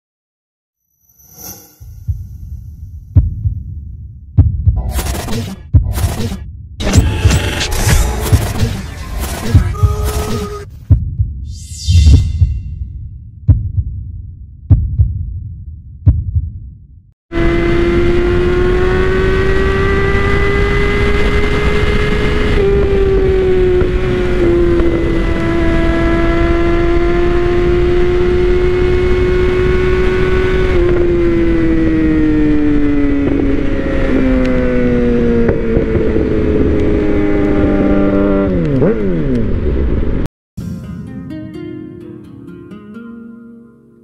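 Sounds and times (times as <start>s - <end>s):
motorcycle engine while riding: 17.3s - 40.2s
wind noise: 20.5s - 38.6s.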